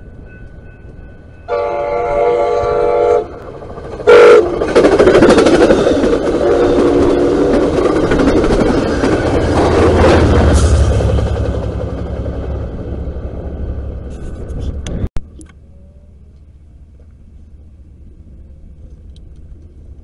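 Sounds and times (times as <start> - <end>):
train air horn: 1.5 - 3.4, 4.0 - 4.6, 6.4 - 7.5
train wheels clattering on rail: 3.3 - 13.3.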